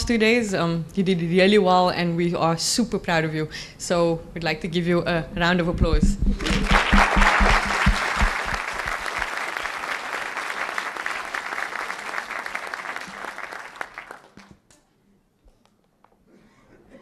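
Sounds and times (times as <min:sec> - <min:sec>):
audience applause: 0:06.4 - 0:14.5.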